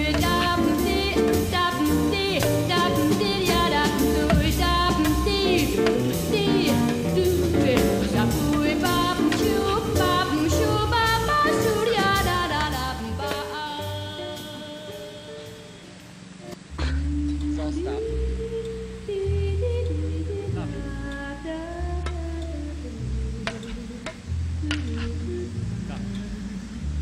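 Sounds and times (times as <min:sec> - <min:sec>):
song with bass and drums: 0:00.0 - 0:15.1.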